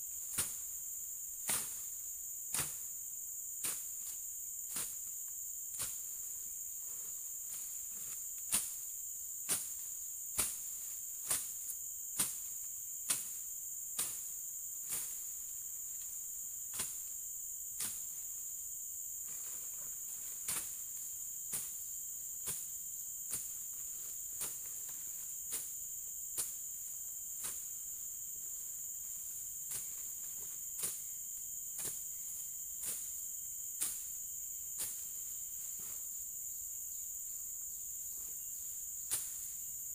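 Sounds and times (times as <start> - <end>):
insects droning: 0.0 - 39.9
blade swishing through grass: 0.3 - 0.8, 1.4 - 1.9, 2.5 - 2.9, 5.7 - 6.3, 7.4 - 12.5, 19.3 - 21.8, 24.3 - 25.7, 39.1 - 39.6.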